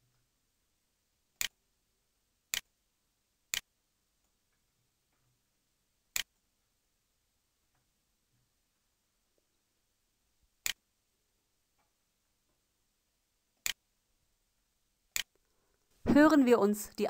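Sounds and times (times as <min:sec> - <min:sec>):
computer mouse clicks: 0:06.2 - 0:06.4, 0:15.1 - 0:15.5.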